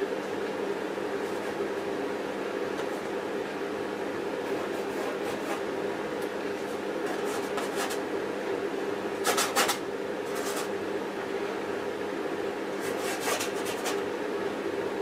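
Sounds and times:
room hum: 0:00.0 - 0:15.0
paintbrush scratching: 0:12.8 - 0:14.0.

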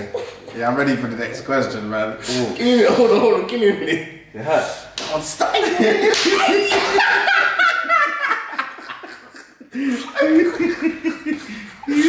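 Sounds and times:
men laughing: 0:02.6 - 0:04.0, 0:05.4 - 0:12.0.

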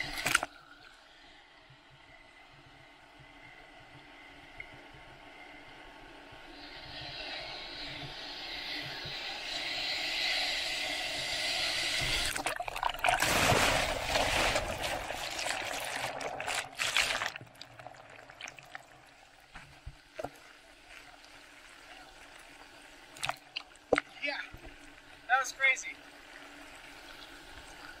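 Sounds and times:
sharp splash: 0:12.3 - 0:17.4.

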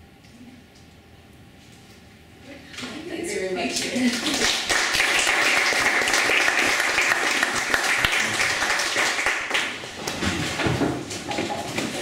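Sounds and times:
audience applauding: 0:04.0 - 0:09.9.

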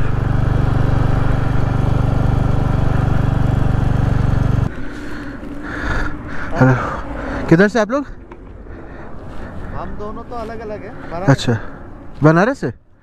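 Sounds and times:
motorcycle engine running: 0:00.0 - 0:06.0.

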